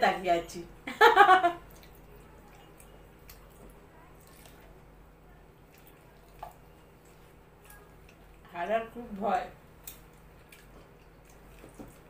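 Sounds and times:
low steady hum: 0.0s - 12.0s
chewing: 1.6s - 8.5s, 9.7s - 12.0s.

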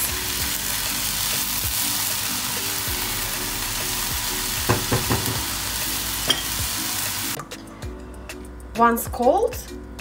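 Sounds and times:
vegetables sizzling in a frying pan: 0.0s - 7.4s
spatula knocking against pan: 4.7s - 5.5s.

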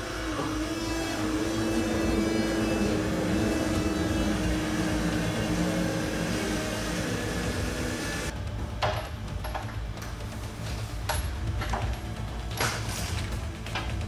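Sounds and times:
forklift running: 0.0s - 8.7s.

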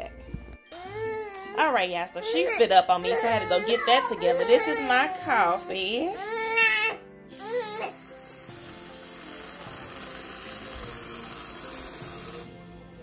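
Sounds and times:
aerosol can spraying hiss: 7.4s - 12.5s.

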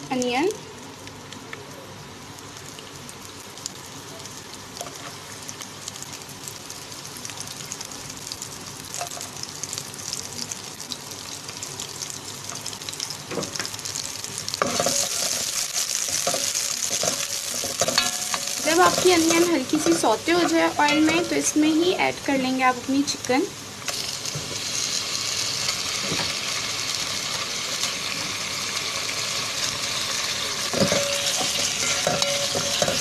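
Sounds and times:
onion sizzling in oil: 0.0s - 33.0s
spatula scraping a pan: 14.6s - 21.5s, 30.8s - 33.0s.

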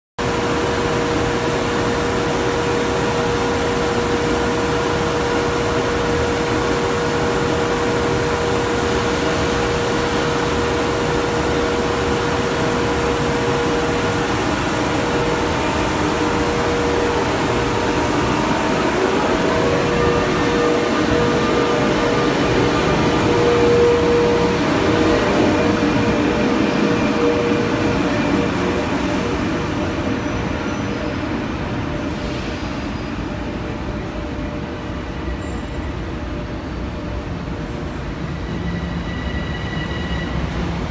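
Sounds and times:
locomotive blowers whirring: 14.2s - 28.5s.

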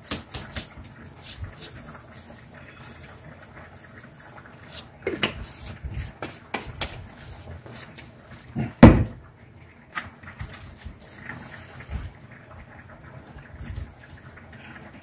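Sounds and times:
container knocking on counter: 8.8s - 9.2s.

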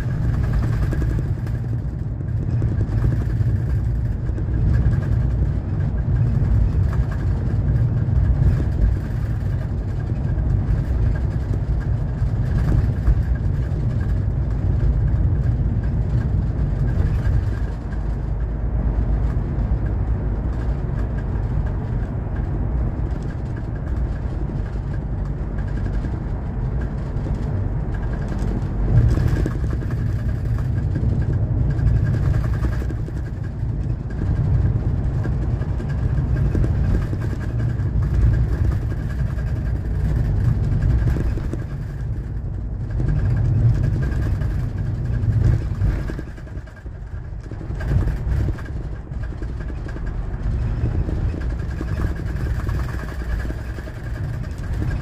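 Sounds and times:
coach engine drone: 0.0s - 55.0s
road noise: 0.0s - 55.0s.

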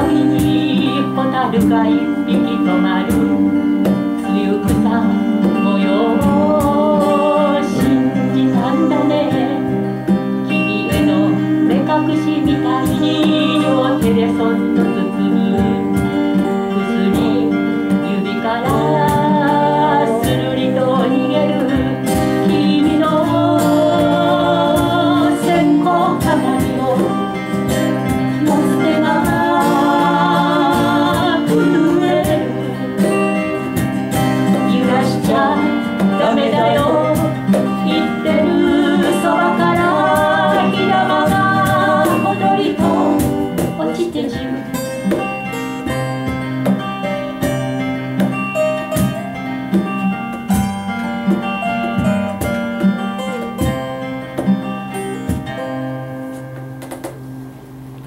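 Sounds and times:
person singing: 0.0s - 46.1s
acoustic guitars playing: 0.0s - 58.0s.

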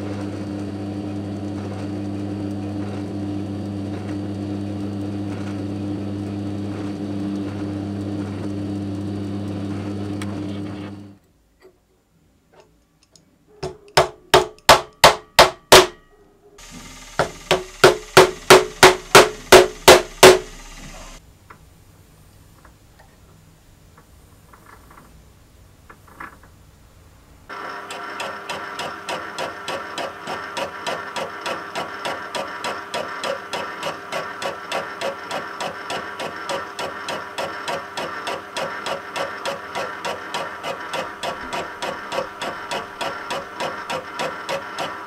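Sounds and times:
drill cutting steel: 16.6s - 21.2s, 27.5s - 45.0s
mallet tapping steel shaft: 17.2s - 20.5s.

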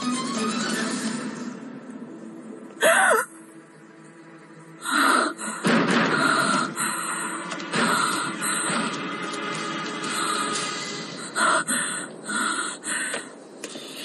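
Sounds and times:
background music: 0.0s - 14.0s
person gasping cry: 2.8s - 3.3s.

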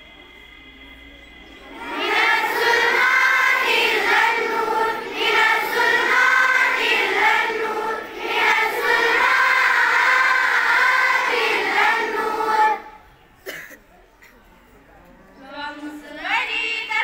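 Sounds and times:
children's choir singing: 1.2s - 13.2s.

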